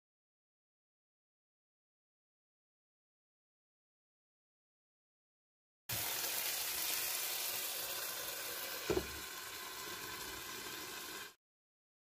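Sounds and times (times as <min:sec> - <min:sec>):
flatbread sizzling in frying pan: 0:05.9 - 0:11.4
glass lid knock: 0:08.9 - 0:09.2.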